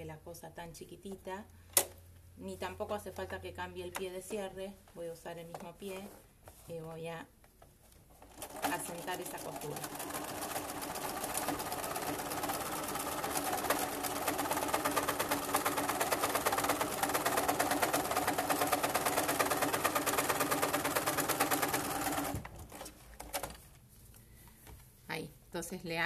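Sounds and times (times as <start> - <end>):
sewing machine stitching: 8.2 - 23.6.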